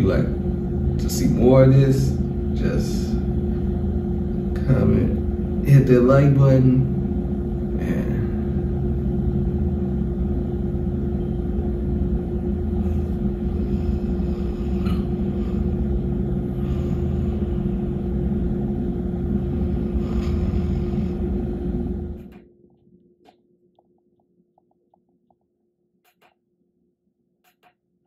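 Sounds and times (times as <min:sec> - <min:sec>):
low rumble: 0:00.0 - 0:22.4
constant hum: 0:00.0 - 0:26.4.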